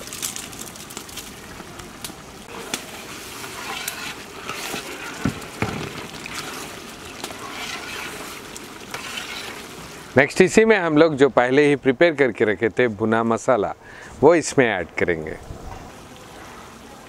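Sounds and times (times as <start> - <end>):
curry simmering in a metal pot: 0.0 - 11.5
metal ladle stirring: 2.5 - 10.2.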